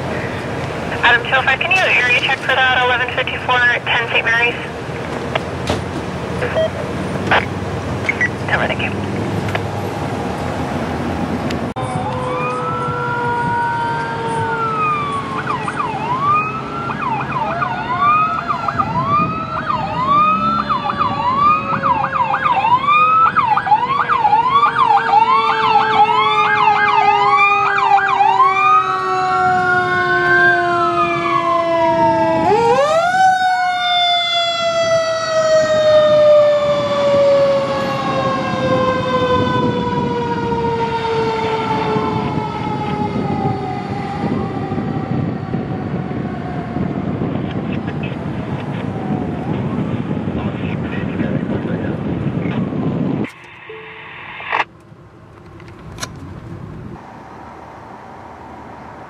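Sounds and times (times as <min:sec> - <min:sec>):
siren wailing and yelping: 0:06.4 - 0:07.5, 0:11.8 - 0:47.0
deeper siren tone sliding: 0:10.1 - 0:47.1.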